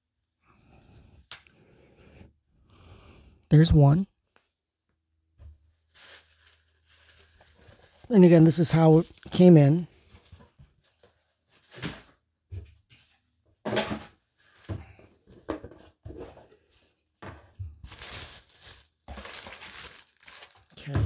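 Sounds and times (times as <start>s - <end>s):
paper packaging rustling: 5.7s - 12.2s, 17.7s - 21.0s.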